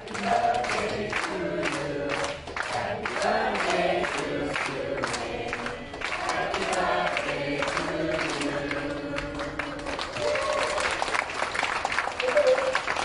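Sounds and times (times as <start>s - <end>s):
group of people singing: 0.0s - 10.2s
people clapping: 0.0s - 13.0s.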